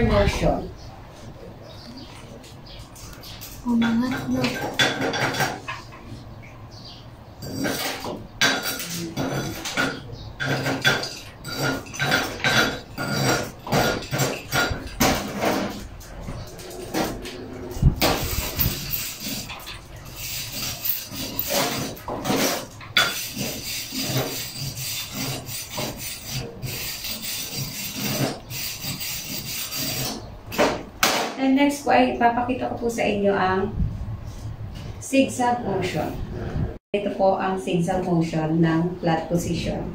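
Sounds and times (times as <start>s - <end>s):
wire brush scrubbing metal: 10.5s - 30.3s.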